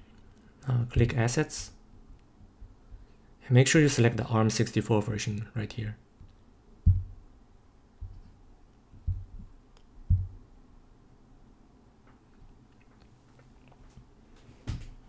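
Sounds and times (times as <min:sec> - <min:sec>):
soft low thumps: 0:06.8 - 0:07.4, 0:08.0 - 0:10.6.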